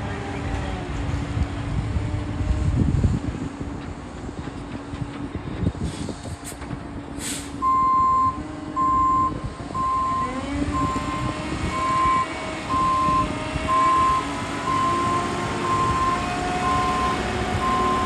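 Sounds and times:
diesel engine running: 0:06.6 - 0:18.0
truck backup alarm beeping: 0:07.6 - 0:18.0.

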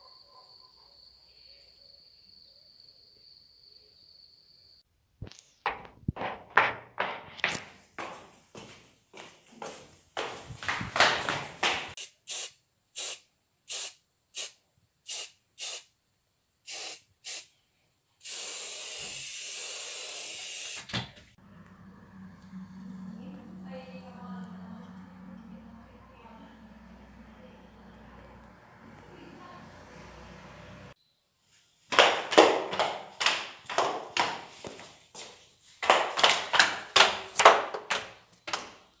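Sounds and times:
sharp knocks: 0:05.7 - 0:07.6
aerosol spray can hissing: 0:12.0 - 0:15.9, 0:16.7 - 0:17.5, 0:18.2 - 0:20.9.

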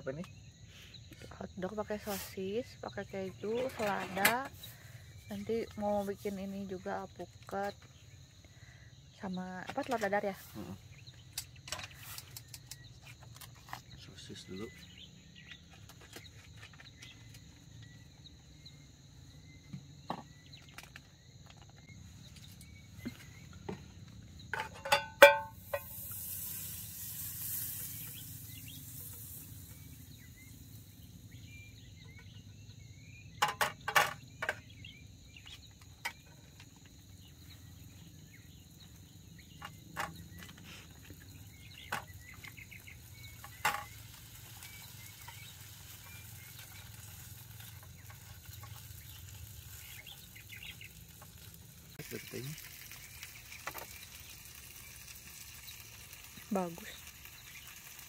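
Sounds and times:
faint insect-like tones: 0:00.0 - 0:58.0
sausages sizzling in a pan: 0:24.2 - 0:32.2, 0:34.7 - 0:58.0
utensils knocking against pan: 0:24.5 - 0:26.0, 0:33.4 - 0:34.6.

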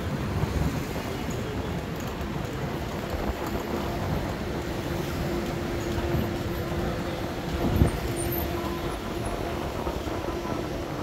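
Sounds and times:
low rumble of traffic: 0:00.0 - 0:11.0.

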